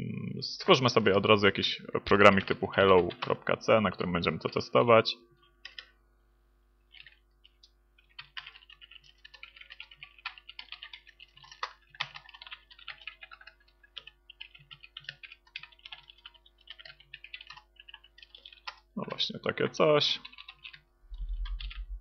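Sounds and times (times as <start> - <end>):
computer keyboard typing: 5.6 - 5.9, 6.9 - 19.2, 20.0 - 22.0.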